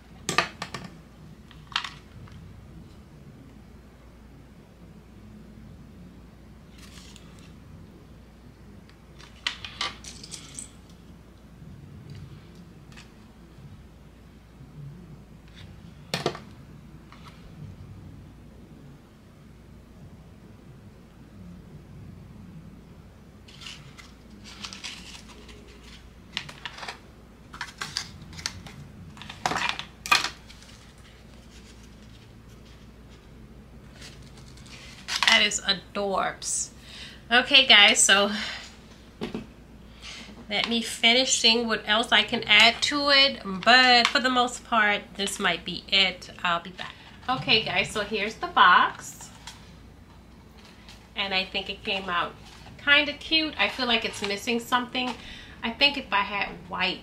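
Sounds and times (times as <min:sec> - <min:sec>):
rustling of craft supplies: 0:06.7 - 0:07.6, 0:23.4 - 0:35.8, 0:46.3 - 0:56.0.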